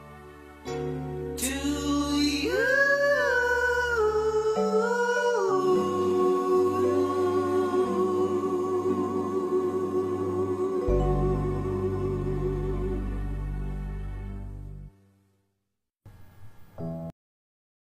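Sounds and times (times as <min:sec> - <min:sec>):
soft backing music: 0:00.0 - 0:14.9
person singing with vibrato: 0:01.3 - 0:13.9.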